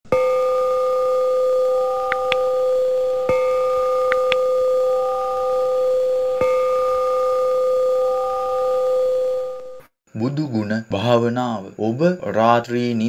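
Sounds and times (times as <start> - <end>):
ringing bell tone: 0.1 - 9.8
short high pings: 0.1 - 9.8.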